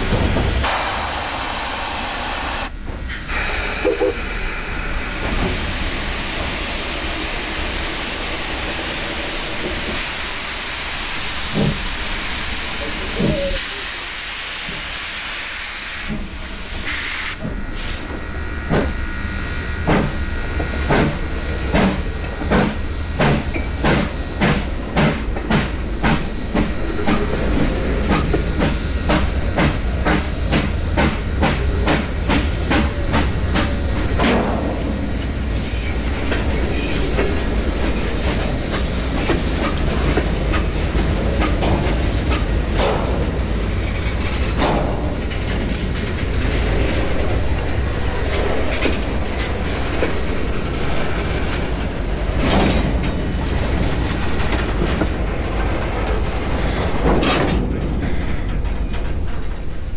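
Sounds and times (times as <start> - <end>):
steam locomotive hissing steam: 0.0 - 57.1
high squeals: 18.1 - 57.0.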